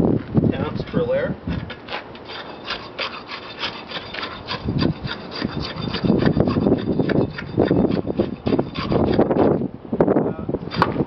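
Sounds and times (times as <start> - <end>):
steel rod plunging into concrete: 1.6 - 9.6.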